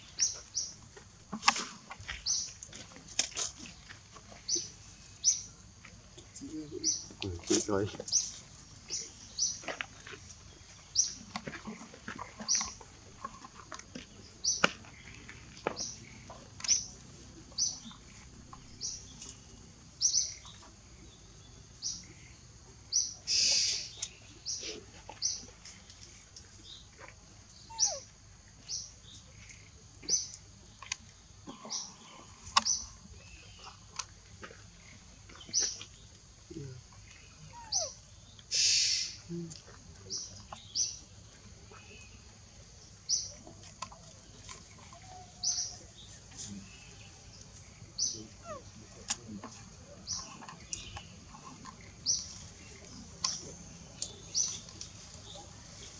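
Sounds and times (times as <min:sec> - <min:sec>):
bird chirping: 0:00.0 - 0:00.8, 0:03.7 - 0:26.9, 0:27.5 - 0:34.1, 0:34.8 - 0:55.9
longer noisy bird call: 0:22.9 - 0:25.4, 0:37.3 - 0:39.3.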